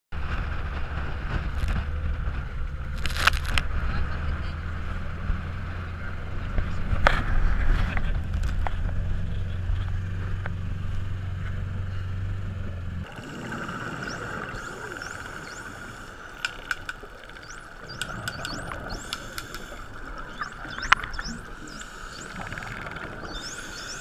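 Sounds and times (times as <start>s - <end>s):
boat engine running: 0.2s - 24.0s
dolphins whistling: 13.0s - 24.0s
dolphin clicks: 13.1s - 24.0s.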